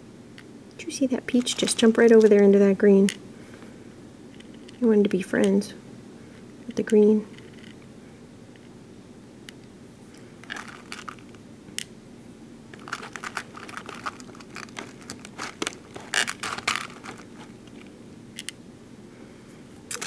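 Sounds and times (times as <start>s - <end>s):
plastic beads clicking and rattling: 10.4s - 11.4s, 12.7s - 18.5s.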